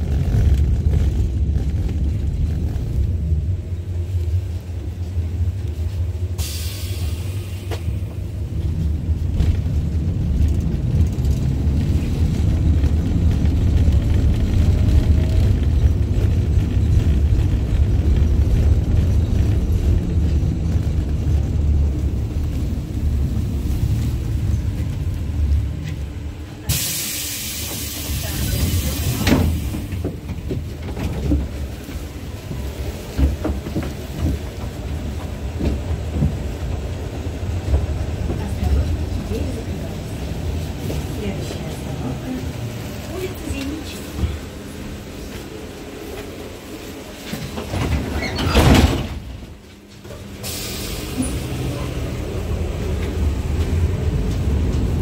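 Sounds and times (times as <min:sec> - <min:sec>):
tram rumbling on rails: 0:00.0 - 0:55.0
air hiss: 0:06.4 - 0:07.9, 0:26.7 - 0:29.9, 0:50.4 - 0:51.5.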